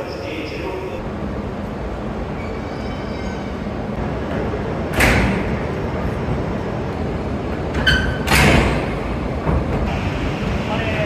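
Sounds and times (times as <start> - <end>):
steady low rumble: 0.0 - 2.6
train cars coupling thud: 7.7 - 9.9.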